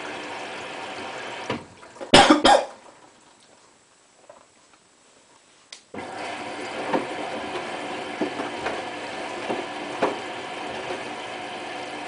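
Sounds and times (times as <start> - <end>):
washing machine drum motor running: 0.0 - 2.0, 6.0 - 12.0
wet laundry thudding in drum: 6.8 - 11.1.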